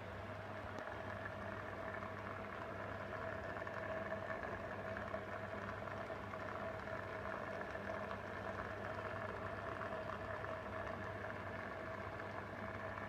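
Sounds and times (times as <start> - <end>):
aquarium pump humming: 0.0 - 13.0.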